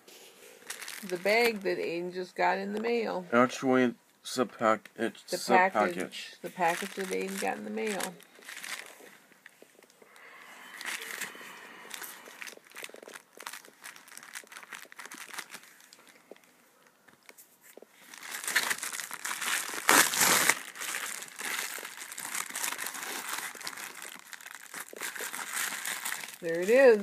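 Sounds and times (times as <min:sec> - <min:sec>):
plastic mailer crinkling: 0:00.6 - 0:01.8, 0:06.5 - 0:09.9, 0:10.8 - 0:16.5, 0:18.0 - 0:27.0
mailer tearing open: 0:18.3 - 0:26.4.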